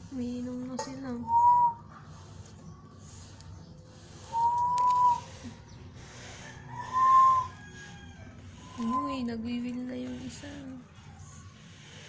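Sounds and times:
whistle-like tones: 0:01.2 - 0:01.9, 0:04.3 - 0:05.4, 0:06.7 - 0:07.6, 0:08.5 - 0:09.3.

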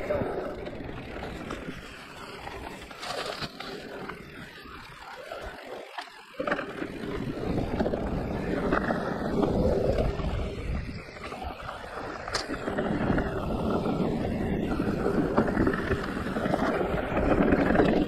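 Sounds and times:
bike tyre and frame rattle: 0:00.0 - 0:18.0
wind rush on microphone: 0:06.8 - 0:18.0.

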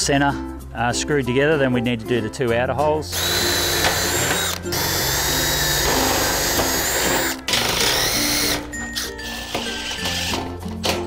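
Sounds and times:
cordless drill whining: 0:03.1 - 0:10.5.

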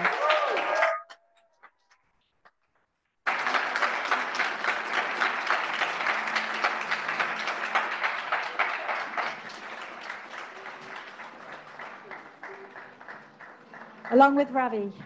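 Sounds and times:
audience applauding: 0:00.0 - 0:01.7, 0:03.2 - 0:14.9.

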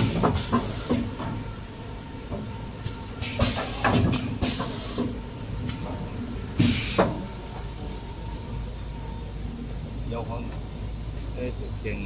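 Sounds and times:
pneumatic air hisses: 0:00.0 - 0:01.2, 0:02.8 - 0:05.8, 0:06.6 - 0:07.3.

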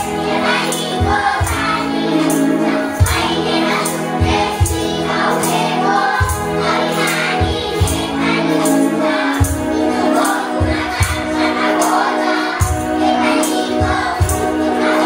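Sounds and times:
singing voices: 0:00.0 - 0:15.0
drumbeat: 0:01.0 - 0:01.8, 0:03.0 - 0:03.6, 0:04.2 - 0:06.8, 0:07.4 - 0:08.4, 0:12.6 - 0:13.0.

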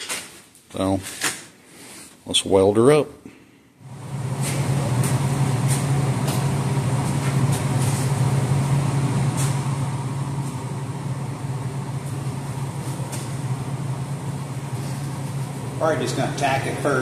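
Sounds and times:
arc welder buzzing and crackling: 0:03.8 - 0:17.0.

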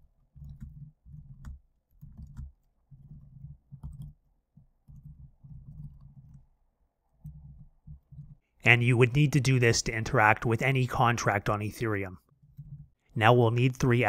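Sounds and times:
computer keyboard typing: 0:00.3 - 0:04.2.

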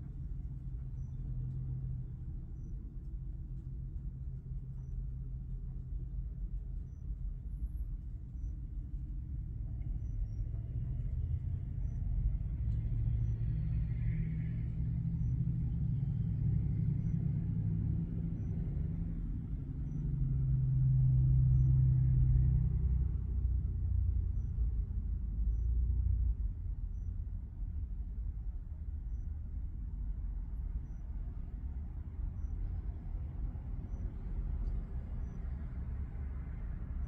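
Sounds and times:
low vehicle engine rumble: 0:00.0 - 0:37.0.

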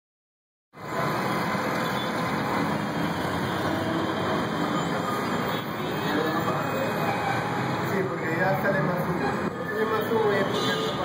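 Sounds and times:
city street traffic rumble: 0:00.7 - 0:11.0
heavy vehicle engines running: 0:00.8 - 0:11.0.

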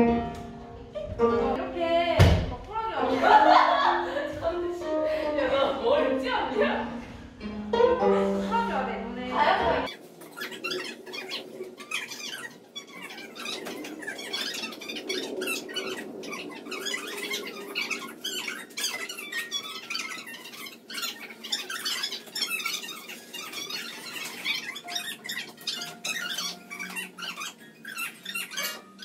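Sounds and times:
woman talking with distorted voice: 0:08.0 - 0:09.9.

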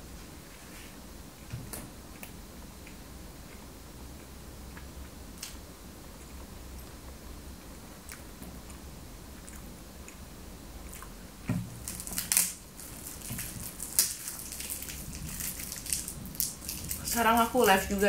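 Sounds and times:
person chewing: 0:08.0 - 0:11.3, 0:11.9 - 0:17.1.

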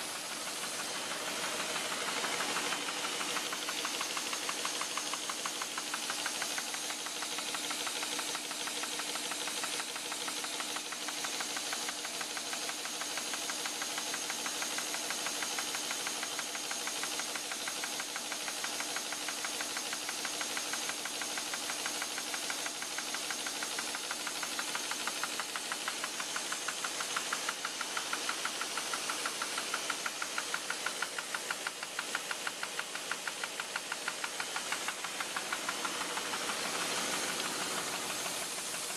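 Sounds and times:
machine mechanical clatter: 0:00.0 - 0:38.9
machine hum: 0:34.4 - 0:38.9.

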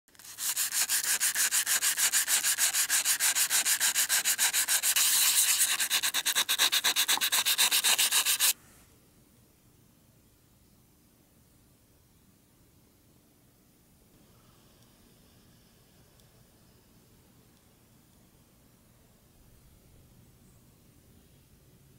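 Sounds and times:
sandpaper scraping on steel: 0:00.1 - 0:08.6.

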